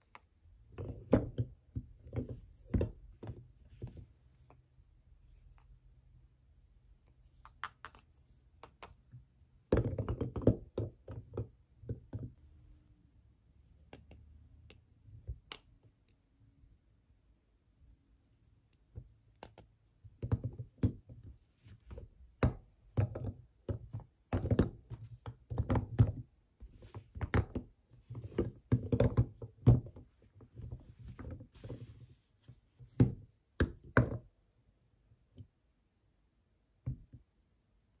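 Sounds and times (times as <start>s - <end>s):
soap bars knocking together: 8.6s - 12.4s, 18.9s - 31.4s.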